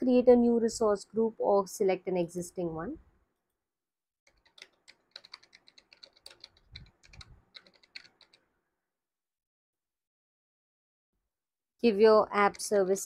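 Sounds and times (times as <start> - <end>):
computer keyboard typing: 4.3 - 8.5.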